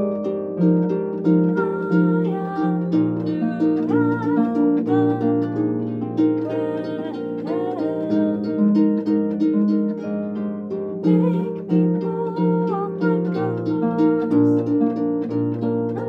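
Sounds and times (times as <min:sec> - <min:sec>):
harp plucked notes: 0:00.0 - 0:16.0
woman singing: 0:01.3 - 0:08.9, 0:11.0 - 0:15.0.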